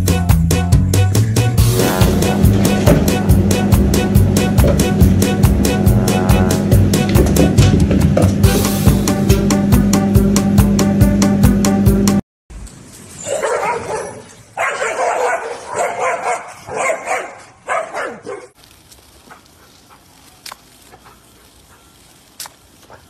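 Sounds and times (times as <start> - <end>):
loud music: 0.0 - 12.2
dogs barking: 13.2 - 18.6
faint clicks: 18.6 - 23.0.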